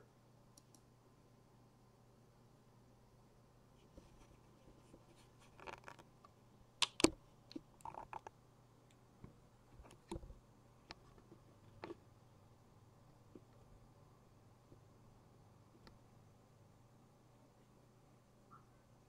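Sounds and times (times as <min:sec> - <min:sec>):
faint low hum: 0:00.0 - 0:19.0
plastic clicks taps and scrapes: 0:09.2 - 0:10.3.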